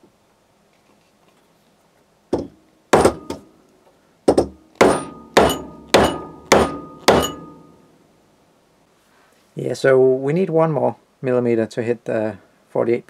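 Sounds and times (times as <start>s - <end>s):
mallet striking metal frame: 2.4s - 3.5s, 4.3s - 7.9s.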